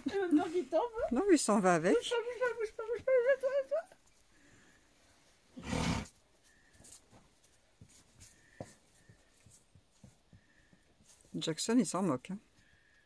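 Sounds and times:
donkey snorting: 5.6s - 6.2s
faint clicks and rustles: 6.2s - 11.4s.

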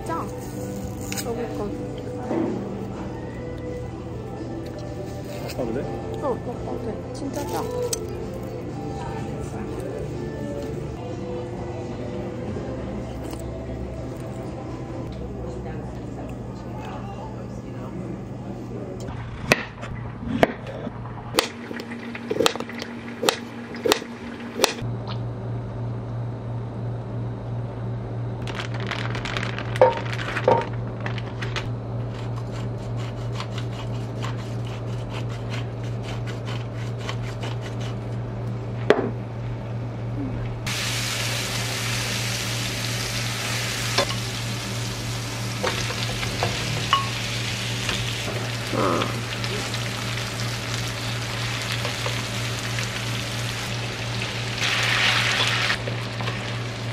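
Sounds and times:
steady low hum: 0.0s - 56.9s
garlic sizzling in hot oil: 40.7s - 56.9s.

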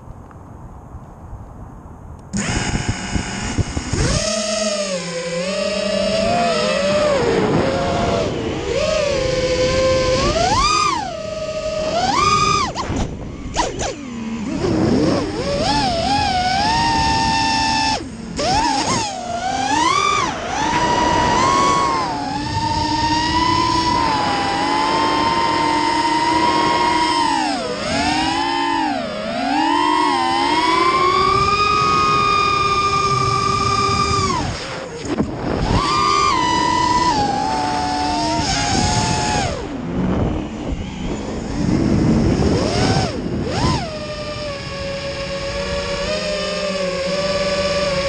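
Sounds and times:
wind rush: 0.0s - 4.3s, 6.0s - 29.2s, 30.2s - 46.1s
drone motors whining: 2.2s - 48.0s
wind rushing: 19.6s - 28.3s.

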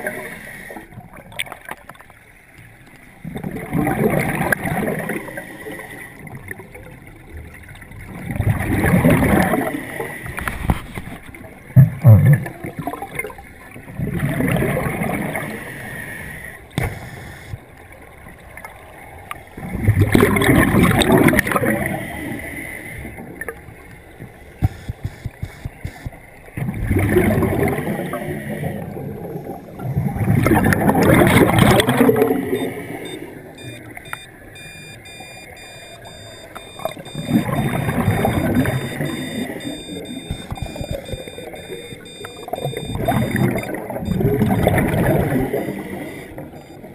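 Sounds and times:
scuba regulator bubbling: 3.2s - 6.8s, 19.5s - 46.9s.

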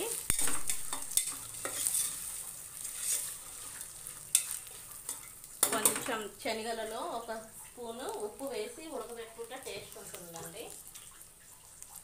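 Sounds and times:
chickpeas sizzling in oil: 0.0s - 12.0s
spoon scraping and knocking pot: 0.3s - 2.3s.

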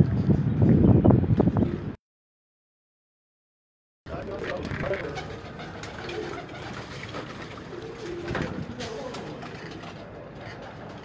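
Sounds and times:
pigeons cooing: 4.8s - 11.0s.

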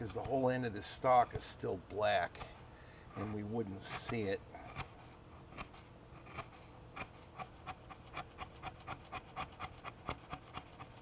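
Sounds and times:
chisel scraping wood: 3.1s - 11.0s.

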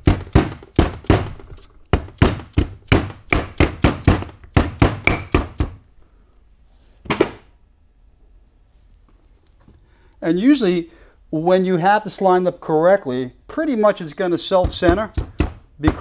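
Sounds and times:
hammer knocking on bench: 0.0s - 5.8s, 14.6s - 16.0s
hammer tapping metal: 2.0s - 5.6s.

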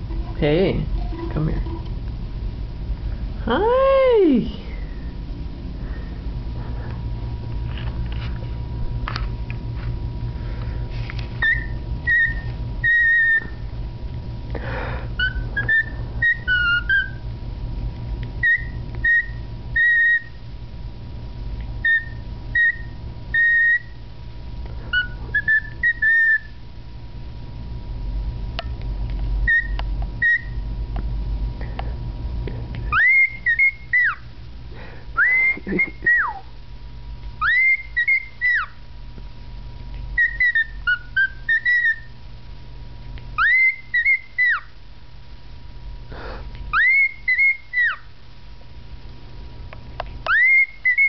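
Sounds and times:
cockatiel whistling a tune: 11.4s - 13.6s, 15.2s - 17.2s, 18.4s - 20.4s, 21.8s - 24.0s, 24.9s - 26.6s, 29.4s - 30.6s, 32.9s - 34.2s, 35.2s - 36.4s, 37.4s - 38.8s, 40.2s - 42.1s, 43.4s - 44.7s, 46.7s - 48.1s, 50.3s - 51.0s.

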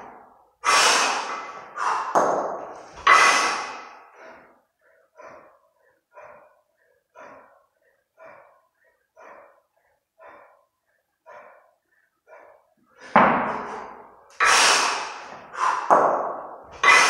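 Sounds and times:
forceful exhalations: 0.1s - 17.0s
person breathing hard: 0.1s - 17.0s.

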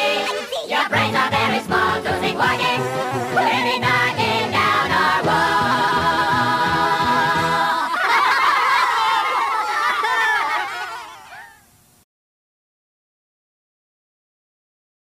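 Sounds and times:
high wavering voice-like sounds: 0.0s - 1.0s, 2.9s - 4.0s
group singing with backing music: 0.0s - 7.9s.

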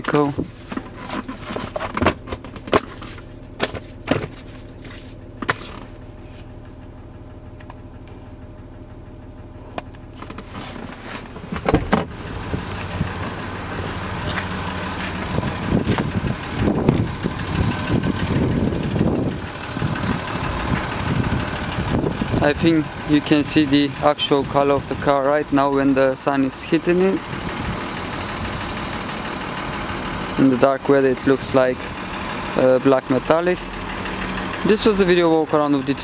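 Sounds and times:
diesel engine idling: 0.0s - 36.0s
irregular thumps: 9.8s - 13.4s.

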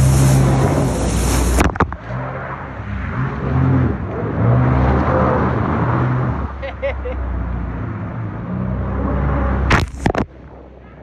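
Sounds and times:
water spray hiss: 0.0s - 1.7s
personal watercraft engine running: 0.0s - 11.0s.

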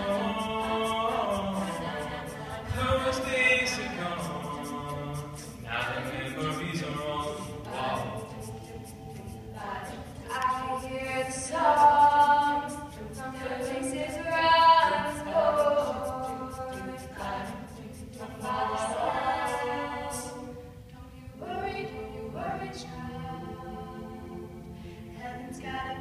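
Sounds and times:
quick ticking beat: 0.0s - 20.4s
choir singing a cappella: 0.0s - 26.0s.

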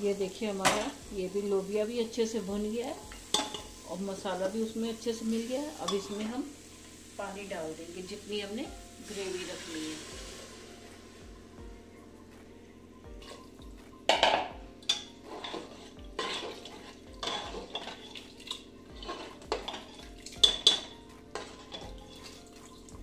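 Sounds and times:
ladle scraping and clinking in pot: 14.2s - 22.4s.

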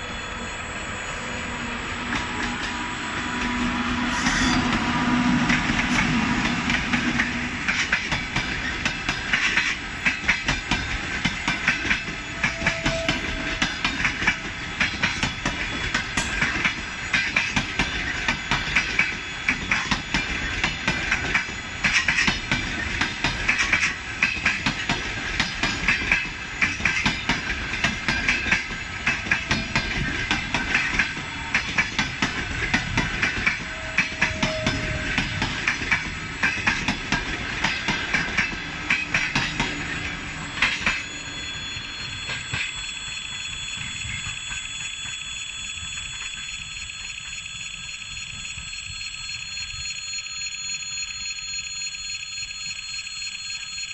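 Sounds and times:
train wheels clacking over rail joints: 2.0s - 41.3s
crossing warning bell ringing: 2.1s - 53.9s.

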